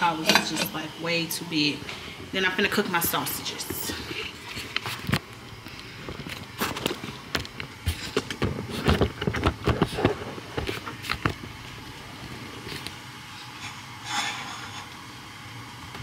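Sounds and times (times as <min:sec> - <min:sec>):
skillet clattering on burner grate: 0:00.2 - 0:00.7.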